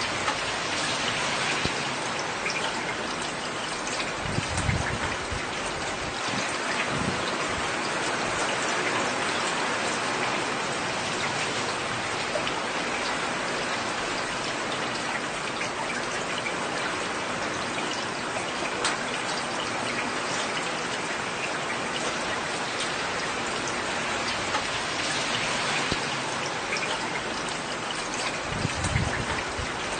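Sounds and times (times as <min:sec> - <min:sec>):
heavy rain falling: 0:00.0 - 0:29.9
sharp raindrop ticks: 0:17.8 - 0:29.9.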